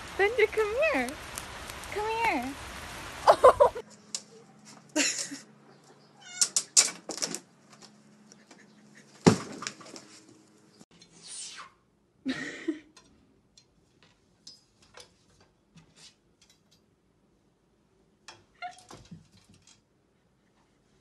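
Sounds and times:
cats scrabbling clicks and knocks: 6.4 - 8.6, 18.7 - 19.9.

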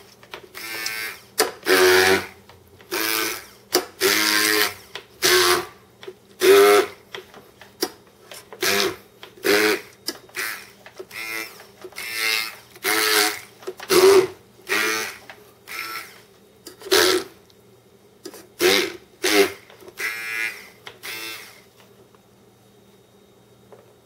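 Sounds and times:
immersion blender whirring: 0.5 - 5.8, 6.4 - 7.0, 8.6 - 16.2, 16.8 - 17.4, 18.6 - 21.7.

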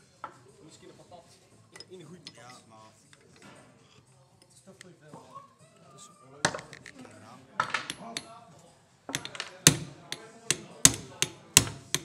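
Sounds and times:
hammer striking metal: 7.8 - 8.3, 9.1 - 12.0.

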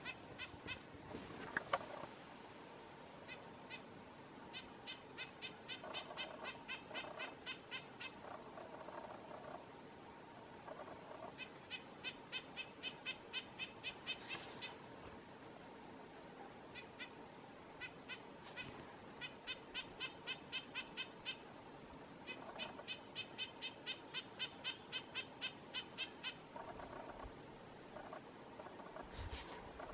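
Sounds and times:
bird nasal calls: 4.5 - 9.7, 10.6 - 14.9, 17.8 - 21.5, 22.2 - 29.9.

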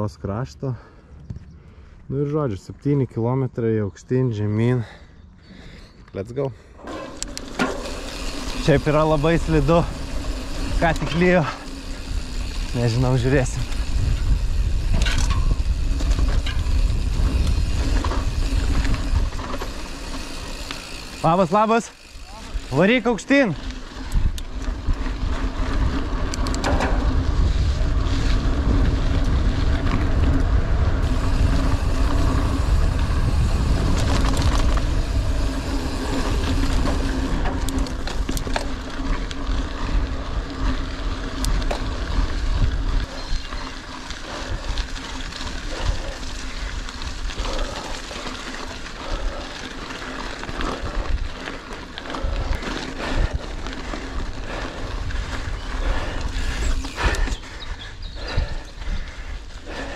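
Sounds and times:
bike tyre and drivetrain noise: 4.8 - 59.9
wind rumble on microphone: 11.9 - 19.8, 24.0 - 49.4, 50.4 - 59.9.

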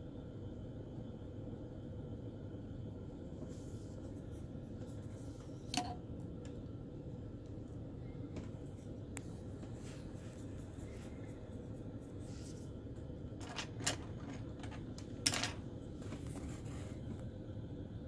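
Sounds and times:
faint steady tone: 0.0 - 18.0
room hum: 0.0 - 18.0.

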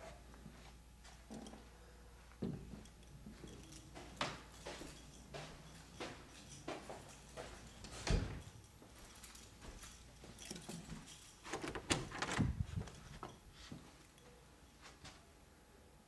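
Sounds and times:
door knocks and clicks: 11.5 - 12.8.

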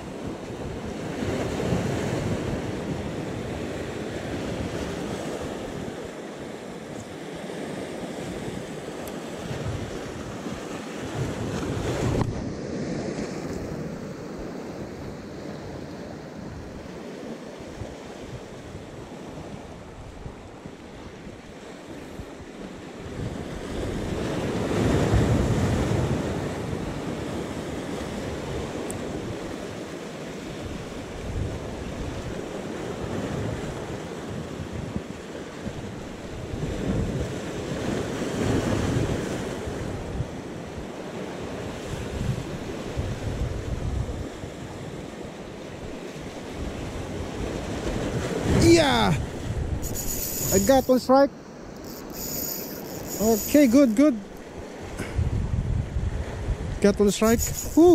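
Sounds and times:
wind buffeting microphone: 8.2 - 17.0, 30.5 - 45.1, 45.8 - 51.0, 51.7 - 57.9.

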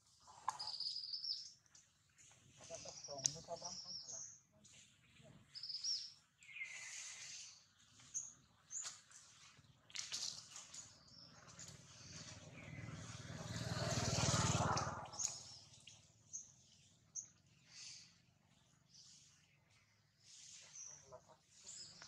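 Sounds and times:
bird chirps: 0.3 - 14.4, 15.0 - 22.0
motor vehicle passing: 11.1 - 18.1.

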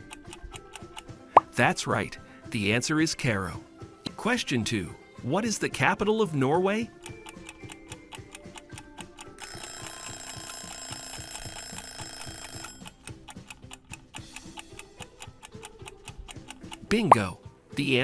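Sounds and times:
clock ticking rapidly: 0.0 - 1.2, 6.9 - 17.2
alarm clock ringing: 9.2 - 14.4.

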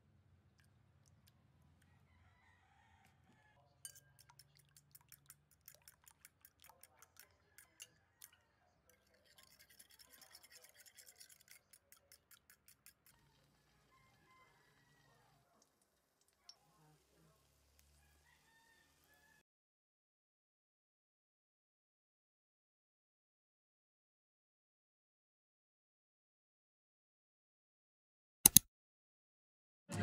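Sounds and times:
fork clicking against bowl: 3.9 - 13.4.

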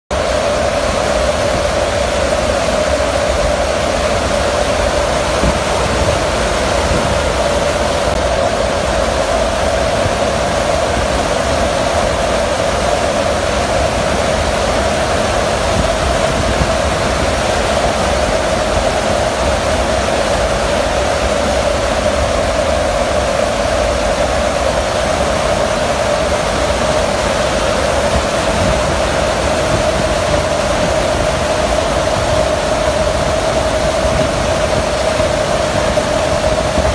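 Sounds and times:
aircraft engine drone: 0.1 - 36.9
wind rushing: 0.1 - 36.9.

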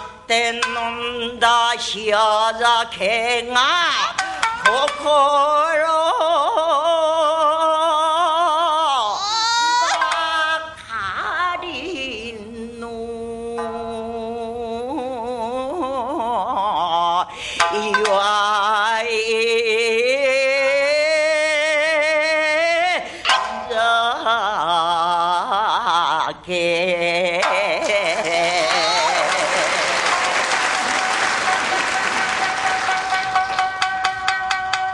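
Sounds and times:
shamisen accompaniment: 0.0 - 2.0, 3.9 - 6.2, 9.6 - 10.8, 13.5 - 15.4, 17.5 - 19.1, 23.3 - 24.0, 27.4 - 34.9
woman singing with heavy vibrato: 0.0 - 30.1
singer breathing: 17.3 - 17.7, 23.0 - 23.4.

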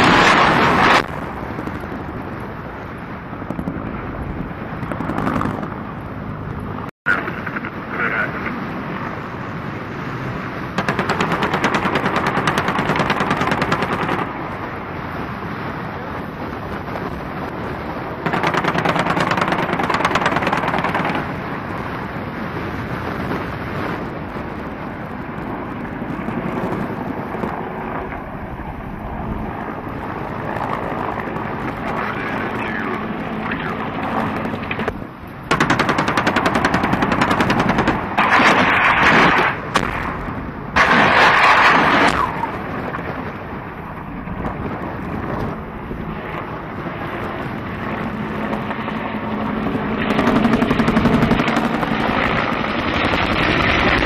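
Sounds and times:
automatic gunfire bursts: 10.8 - 14.3, 18.2 - 21.3, 35.5 - 38.7.

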